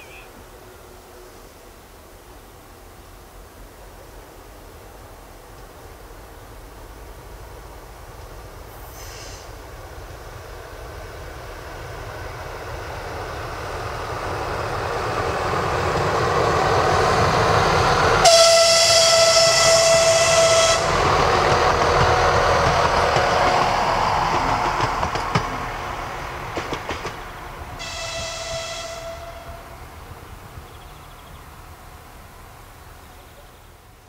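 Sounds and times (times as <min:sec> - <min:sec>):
railbus running noise: 0:00.0 - 0:34.0
railbus horn blast: 0:18.2 - 0:21.2, 0:27.8 - 0:29.8.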